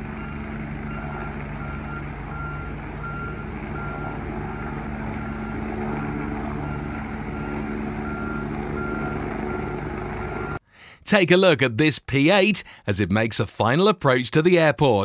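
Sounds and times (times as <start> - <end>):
helicopter turbine and rotor: 0.0 - 10.6.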